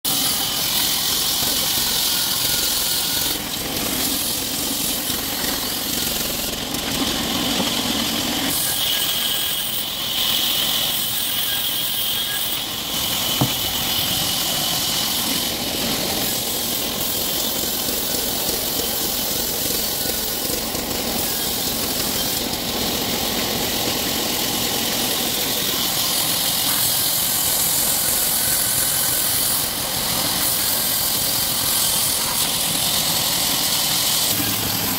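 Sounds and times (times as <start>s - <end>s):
band saw cutting log: 0.0s - 34.9s
sharp knock: 13.4s - 13.8s.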